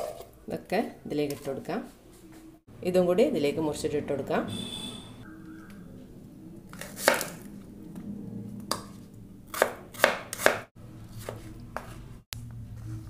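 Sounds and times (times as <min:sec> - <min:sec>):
knife striking chopping board: 0:09.5 - 0:11.4.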